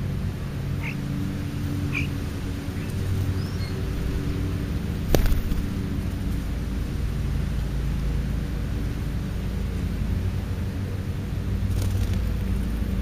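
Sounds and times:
low steady hum: 0.0 - 13.0
starlings chirping and whistling: 0.7 - 4.3.

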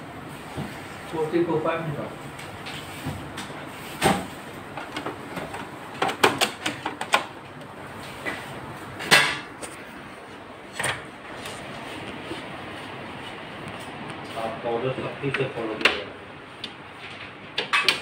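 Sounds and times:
knocks on copier parts: 4.0 - 7.3.

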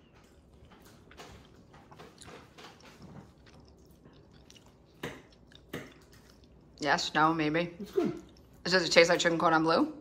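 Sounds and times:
person chewing: 0.0 - 6.8, 7.8 - 8.6.

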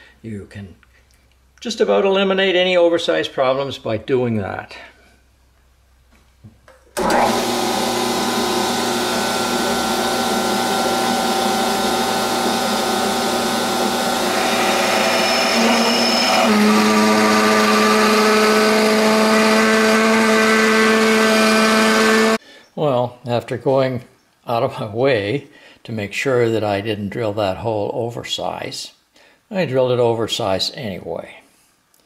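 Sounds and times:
metal lathe motor whine: 7.0 - 22.4.

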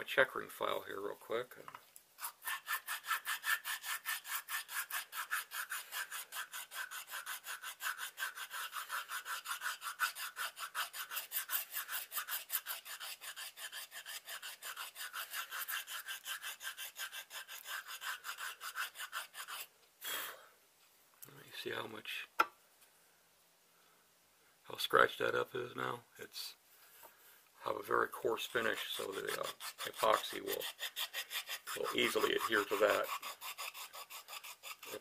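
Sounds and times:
file rasping on knife handle: 2.2 - 19.7, 28.2 - 35.0.

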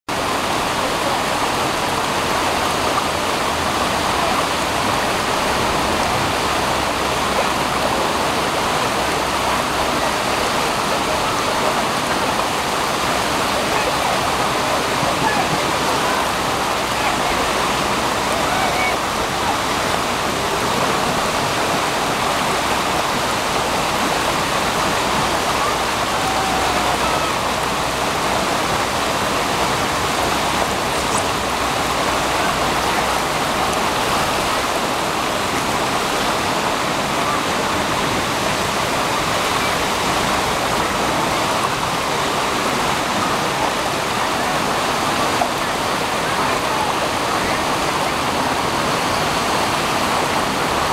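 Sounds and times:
small waterfall pouring: 0.1 - 50.9
waves breaking over rocks: 0.1 - 50.9.

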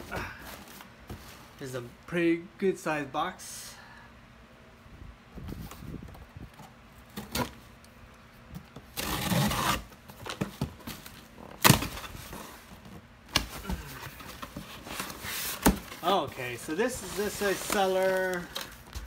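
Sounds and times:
cardboard scraping and tearing: 8.9 - 12.8, 13.4 - 19.0.

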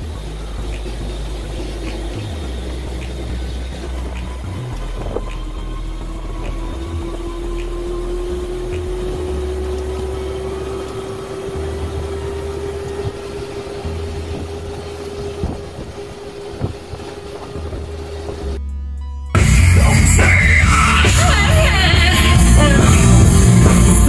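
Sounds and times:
wind rumble on microphone: 0.0 - 18.6.

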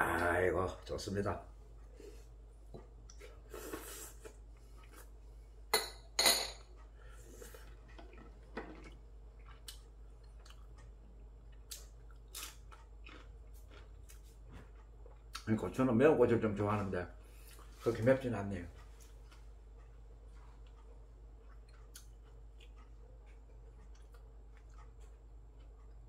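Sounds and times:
quiet chewing: 1.7 - 5.6, 6.8 - 15.5, 18.6 - 26.0.

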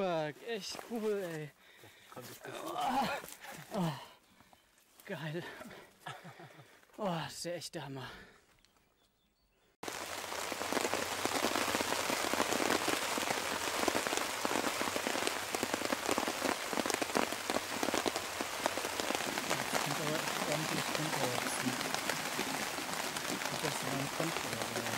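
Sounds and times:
rain on a tarp: 0.0 - 1.5, 2.4 - 4.1, 9.8 - 24.9
raindrops ticking: 9.8 - 24.9.

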